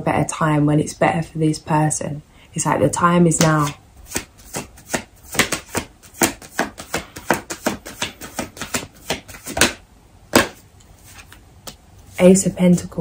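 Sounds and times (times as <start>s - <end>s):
cards being shuffled: 3.4s - 11.8s.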